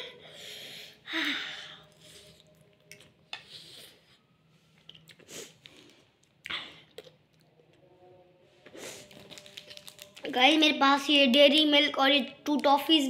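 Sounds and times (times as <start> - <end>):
person slurping and chewing noodles: 1.9 - 7.6.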